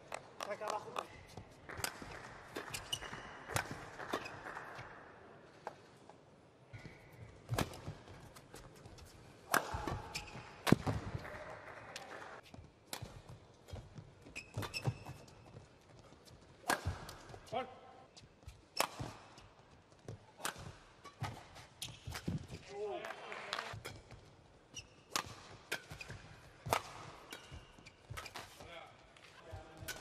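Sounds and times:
shoes squeaking on court: 0.4 - 4.6, 7.2 - 10.9, 12.4 - 17.5, 18.1 - 22.7, 23.9 - 30.0
racket striking shuttlecock: 1.7 - 4.6, 7.5 - 8.1, 9.4 - 11.2, 12.9 - 15.3, 16.6 - 17.3, 18.8 - 19.3, 20.4 - 22.5, 25.1 - 28.6.

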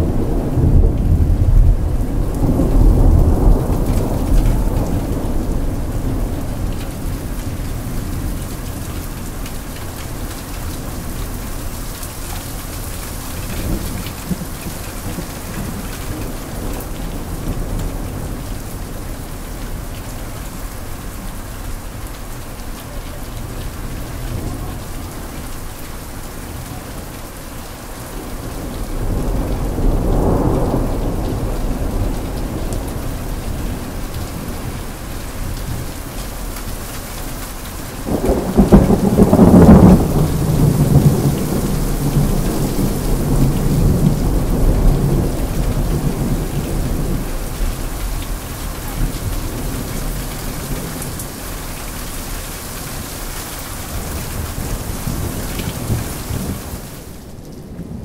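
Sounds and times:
loud thunderclap: 0.0 - 8.3, 28.2 - 34.8, 37.9 - 51.1
low rumble of thunder: 0.0 - 36.9, 37.5 - 53.2, 53.8 - 58.0
heavy rain: 0.0 - 58.0.

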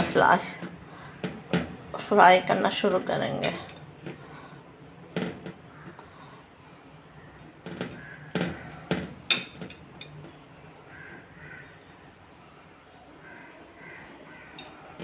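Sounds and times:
low steady hum: 0.0 - 13.2
sharp kitchen knocks: 7.6 - 9.8.

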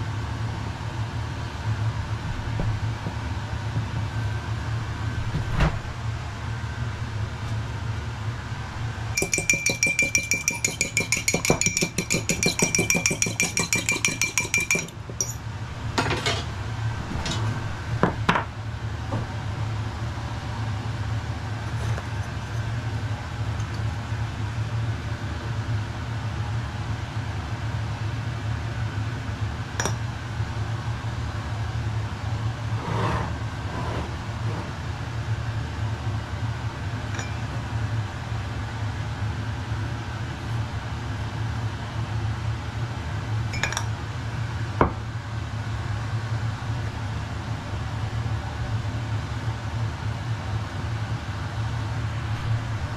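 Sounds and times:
steady low hum: 0.0 - 25.2
spoon clinking in ceramic cup: 9.2 - 15.4, 37.2 - 37.5, 43.6 - 43.9.

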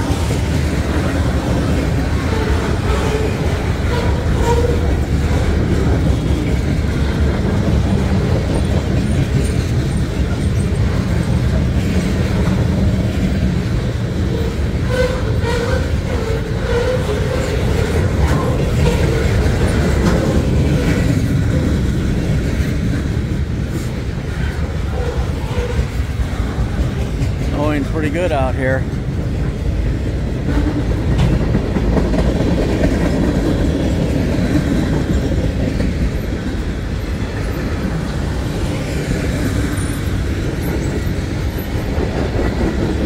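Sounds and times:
rail clicks: 0.0 - 43.0
train wheels rumbling on rail: 0.0 - 43.0.

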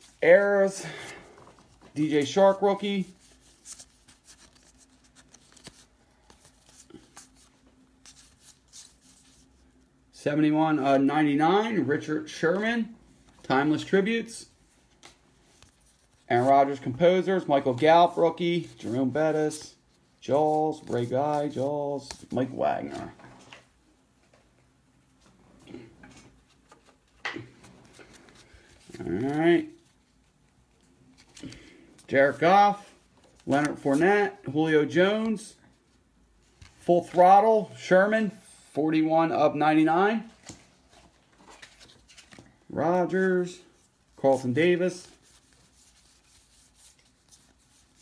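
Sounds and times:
trading cards being flipped: 1.6 - 9.4.

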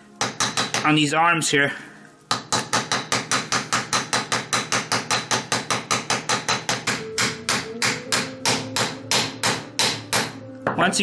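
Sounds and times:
rapid hammer blows on metal: 2.3 - 10.4.

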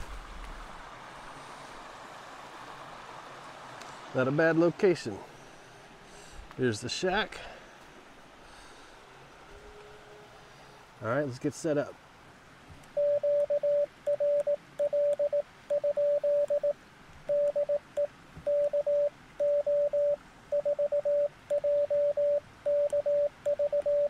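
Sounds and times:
morse code beeps: 13.0 - 24.0.

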